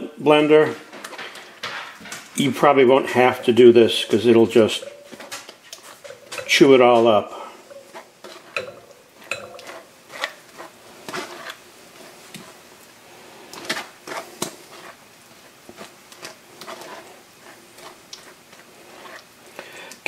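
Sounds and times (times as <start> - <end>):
spoon scraping metal strainer: 3.0 - 12.6, 13.5 - 19.3.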